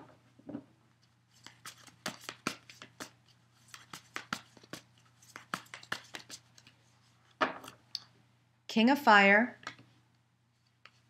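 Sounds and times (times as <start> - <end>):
cards being shuffled: 1.3 - 6.8.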